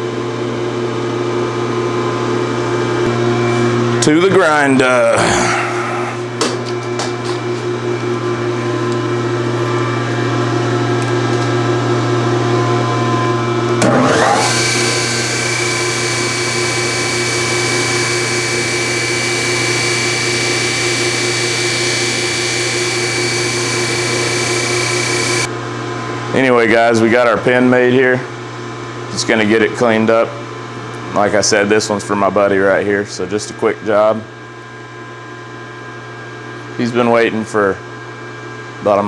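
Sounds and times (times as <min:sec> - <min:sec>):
bench grinder motor humming: 0:13.8 - 0:25.5
wire brush wheel hiss and whine: 0:14.9 - 0:25.5.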